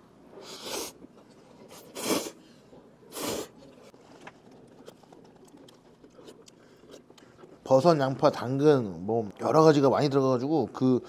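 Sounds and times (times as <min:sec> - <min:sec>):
person slurping noodles: 0:00.4 - 0:01.0, 0:01.7 - 0:02.4, 0:03.1 - 0:03.6.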